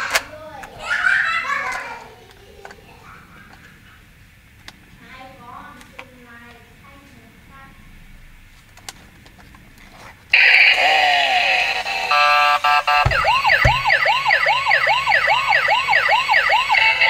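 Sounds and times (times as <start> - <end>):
electronic siren wail: 10.4 - 17.0
toy harsh noisy burst: 10.4 - 17.0.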